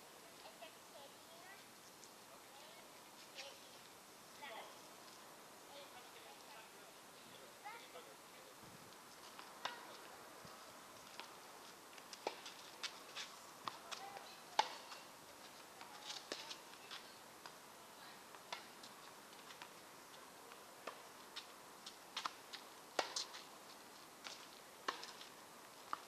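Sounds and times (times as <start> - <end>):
tennis ball pocks: 22.2 - 23.4.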